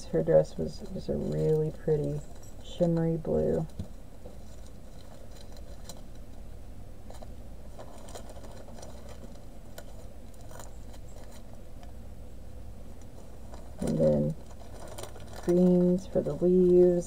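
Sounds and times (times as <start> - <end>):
steady low hum: 0.0 - 17.0
plastic bags crinkling: 7.0 - 11.6, 13.2 - 17.0
plastic beads rattling: 7.1 - 11.5, 13.4 - 17.0.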